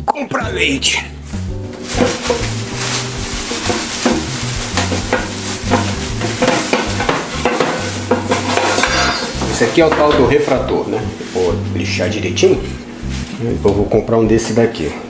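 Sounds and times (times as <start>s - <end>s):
plastic bags crinkling: 1.7s - 11.6s.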